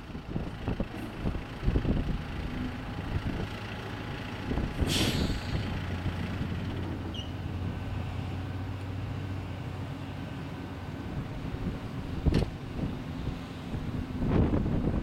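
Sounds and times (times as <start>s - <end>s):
air hiss: 4.9s - 5.6s.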